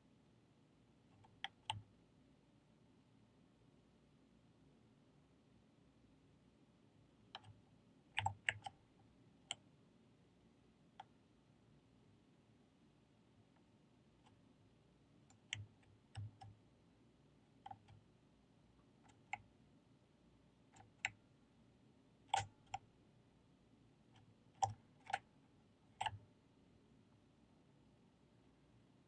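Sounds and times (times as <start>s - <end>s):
faint room hiss: 0.0s - 29.0s
computer mouse clicks: 1.1s - 1.9s, 7.3s - 8.8s, 9.4s - 9.7s, 11.0s - 11.2s, 15.2s - 16.6s, 17.6s - 18.1s, 18.8s - 19.5s, 20.7s - 21.2s, 22.2s - 22.9s, 24.1s - 25.3s, 25.9s - 26.2s.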